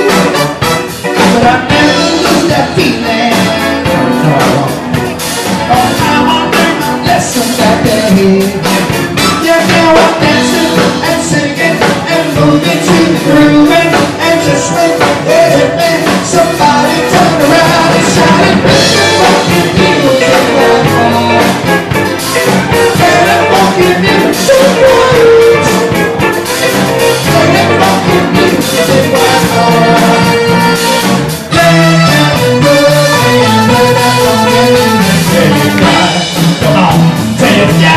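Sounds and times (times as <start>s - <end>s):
man singing into a microphone: 0.0s - 5.0s, 5.7s - 21.8s, 22.4s - 30.8s, 31.5s - 37.9s
live band with drum kit: 0.0s - 37.9s.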